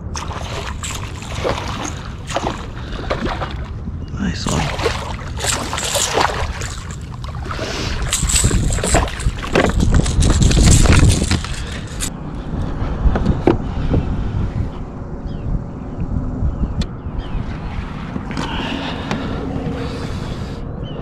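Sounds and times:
fish splashing: 0.0 - 3.8, 4.4 - 12.1
wind on microphone: 0.0 - 21.0.

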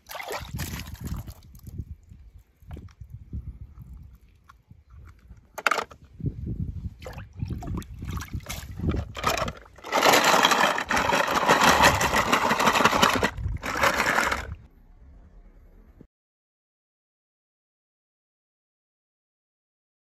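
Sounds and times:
rushing rattling noise: 9.1 - 14.7.

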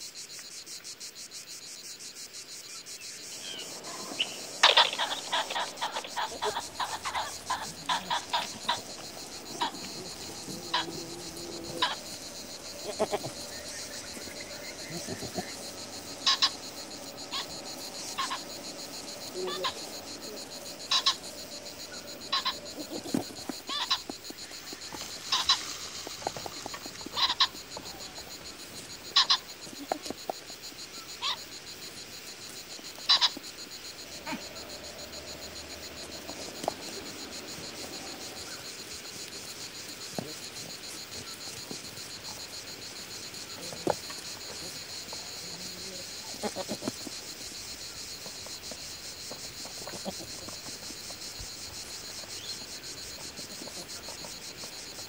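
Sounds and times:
high insect buzz: 0.0 - 55.0
sharp animal calls: 3.4 - 30.0, 32.9 - 38.9, 45.6 - 46.9.

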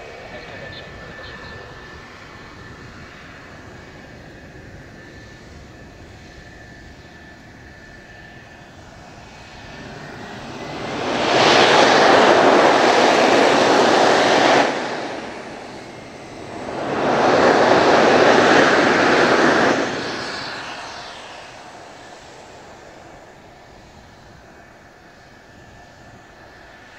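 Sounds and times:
jet engines idling with whine: 0.0 - 26.9
loud jet rush: 8.7 - 24.4.

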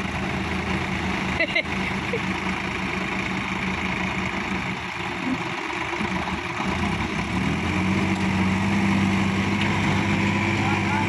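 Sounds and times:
diesel tractor engines under load: 0.0 - 11.0.

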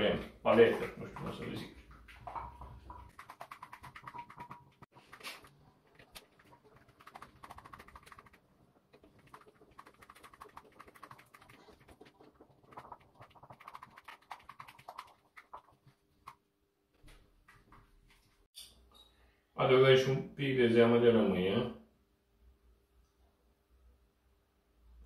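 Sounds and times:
wooden spoon beating in a bowl: 2.0 - 8.4.

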